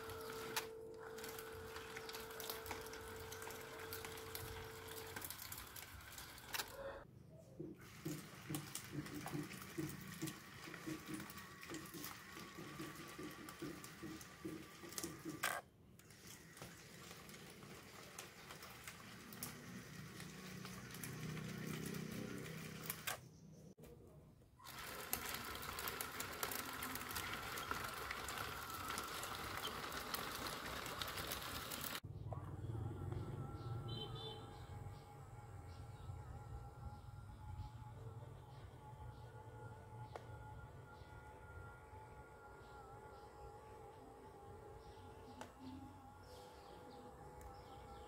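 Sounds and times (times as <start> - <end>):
small electric motors whirring: 0.0 - 7.0, 7.9 - 23.3, 24.6 - 32.0.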